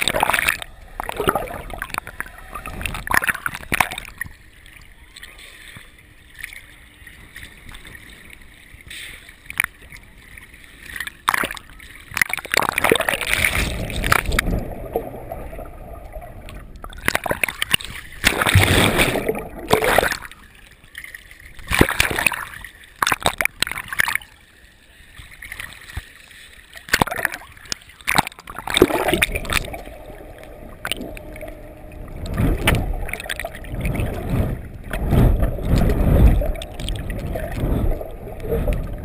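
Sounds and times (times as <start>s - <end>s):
sharp water splashes: 0.0s - 4.4s, 10.9s - 24.2s, 26.8s - 39.0s
water sloshing against camera: 0.0s - 24.4s, 25.0s - 39.0s.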